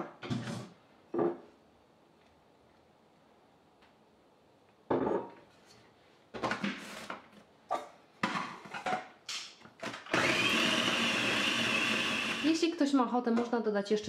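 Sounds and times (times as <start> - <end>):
food processor motor whining: 9.8 - 12.6.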